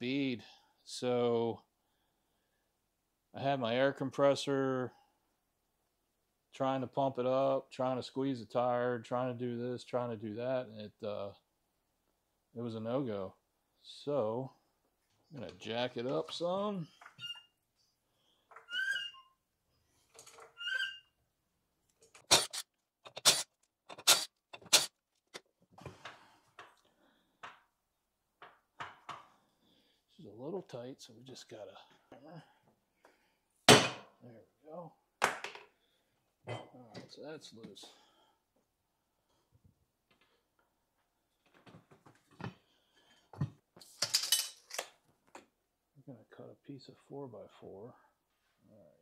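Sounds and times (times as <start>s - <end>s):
metal parts clinking and clanking: 43.9s - 44.9s.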